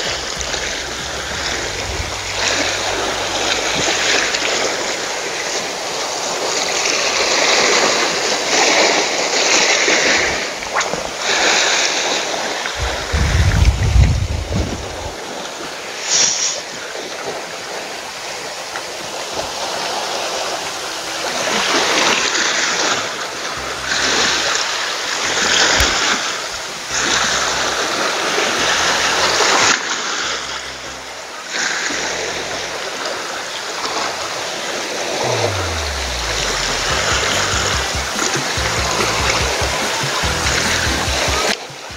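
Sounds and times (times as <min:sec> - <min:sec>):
waves breaking on rocky shore: 0:00.0 - 0:41.9.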